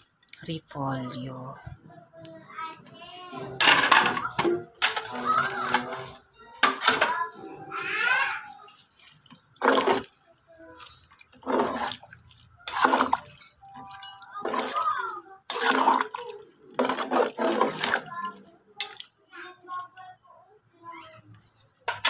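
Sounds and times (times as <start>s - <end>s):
liquid sloshing and splashing: 8.4s - 19.2s
ladle stirring in pot: 8.5s - 19.2s.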